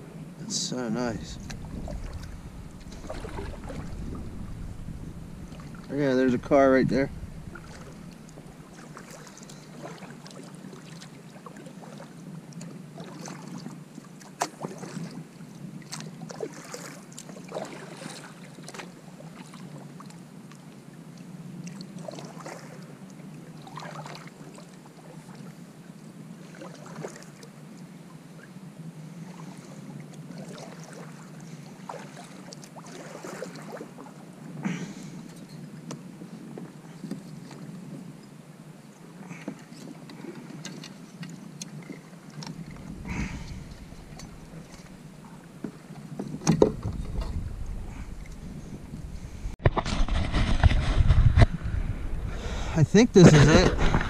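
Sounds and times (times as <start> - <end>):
steady low rumble: 0.0 - 8.9, 42.6 - 45.6, 46.7 - 49.7, 50.5 - 54.0
paddle splashes and drips: 1.4 - 6.6, 7.4 - 28.5, 29.1 - 38.3, 39.0 - 49.6.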